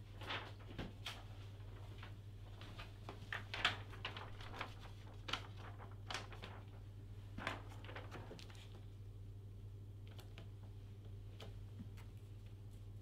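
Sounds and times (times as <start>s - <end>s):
steady low hum: 0.0s - 13.0s
paper rustling: 0.1s - 8.8s.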